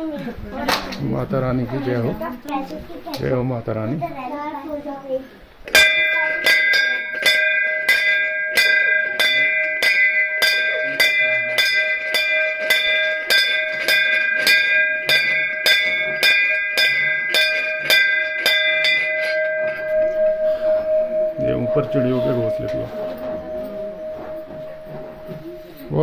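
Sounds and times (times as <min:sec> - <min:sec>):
temple bell ringing: 0:05.7 - 0:26.0.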